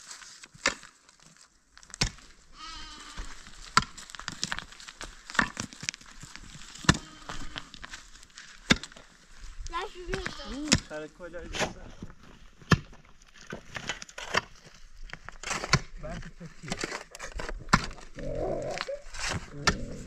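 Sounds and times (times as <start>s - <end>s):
pickaxe striking stony soil: 0.5s - 1.0s, 1.8s - 2.3s, 3.2s - 7.2s, 8.4s - 9.1s, 12.6s - 16.0s, 16.6s - 18.1s, 19.2s - 20.0s
animal bleating: 2.5s - 3.4s, 6.8s - 7.8s, 10.0s - 10.7s.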